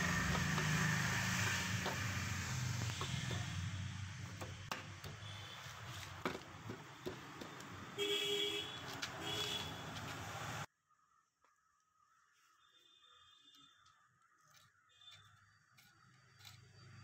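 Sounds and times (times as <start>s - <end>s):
vehicle horn toots: 2.7s - 3.7s, 8.0s - 10.0s.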